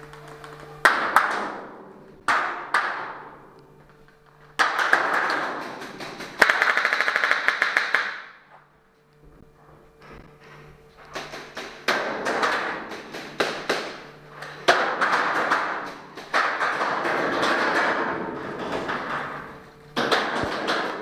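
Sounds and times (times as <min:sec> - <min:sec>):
paintball gunfire in steel container: 0:04.6 - 0:08.2.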